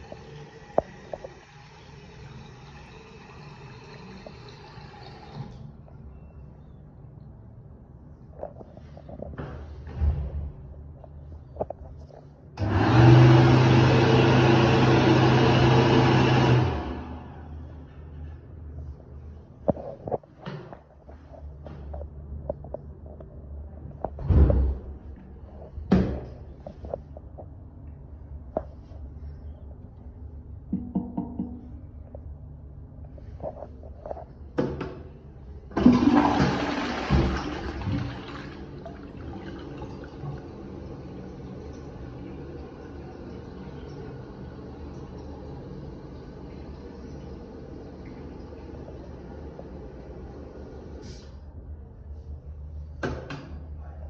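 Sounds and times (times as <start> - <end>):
toilet flushing: 0.0 - 5.8, 12.6 - 17.7, 35.7 - 51.4
electric hand dryer blowing: 12.6 - 17.2
soft knocks and click: 30.7 - 31.8.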